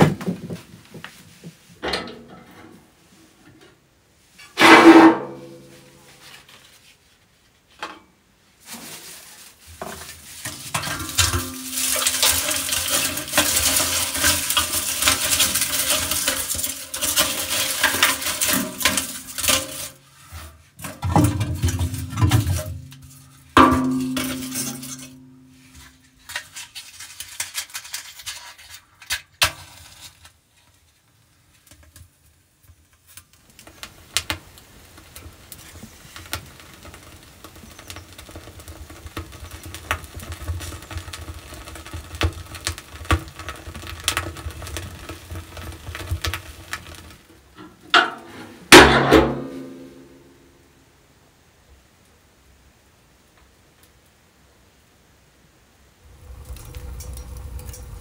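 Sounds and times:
kindling rustling and crackling: 8.6 - 49.6
wood knocking on steel stove: 20.8 - 25.4, 47.6 - 49.7.

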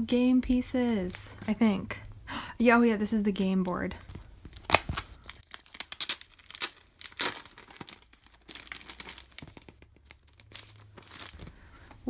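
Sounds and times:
plastic packaging crinkling: 4.2 - 11.5.

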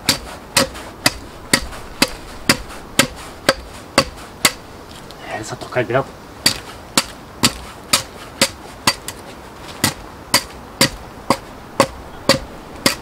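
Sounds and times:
axe chopping into log: 0.0 - 4.6, 6.4 - 9.2.

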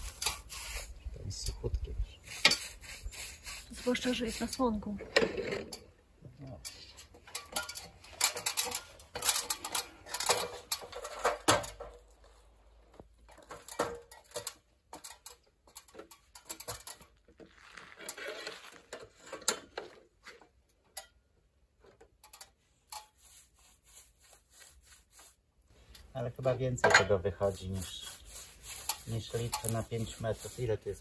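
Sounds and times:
paintbrush scrubbing timber: 0.0 - 1.4, 2.1 - 4.9, 23.0 - 25.5, 27.0 - 31.0.

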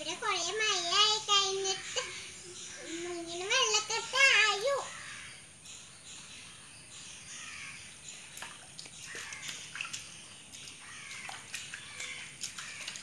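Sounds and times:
birds calling: 0.0 - 13.0
feet splashing through puddle: 8.3 - 13.0.

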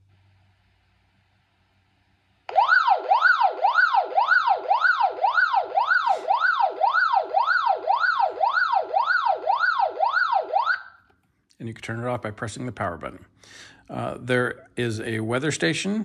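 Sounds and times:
electronic siren wailing: 2.5 - 11.0.

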